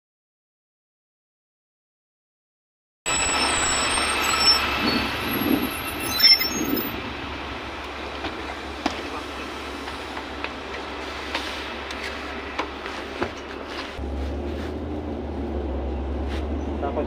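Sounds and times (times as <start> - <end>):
high whine: 3.1 - 14.3
bus engine hum: 3.1 - 17.0.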